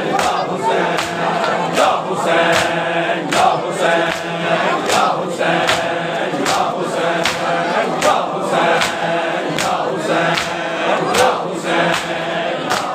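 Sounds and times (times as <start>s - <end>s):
men chanting in unison: 0.0s - 12.9s
rhythmic chest-beating: 0.0s - 12.9s.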